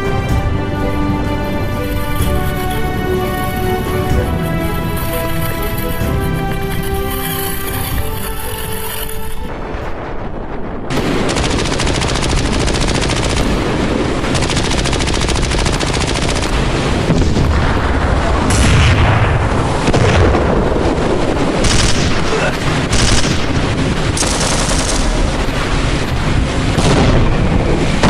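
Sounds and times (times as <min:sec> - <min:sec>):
machine-gun fire: 0:10.9 - 0:17.5, 0:21.6 - 0:26.0, 0:26.7 - 0:27.4
heavy booms: 0:16.8 - 0:28.0.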